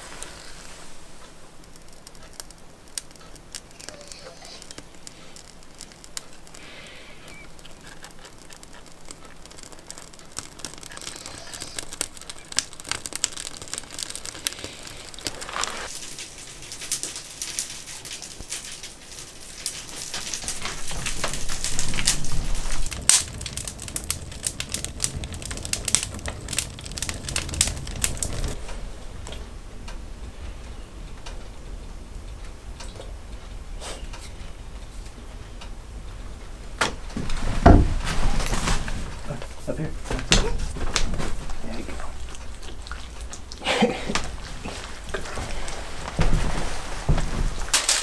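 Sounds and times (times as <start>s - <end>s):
kindling crackling and popping: 0.0s - 48.0s
low rumble: 20.4s - 33.8s.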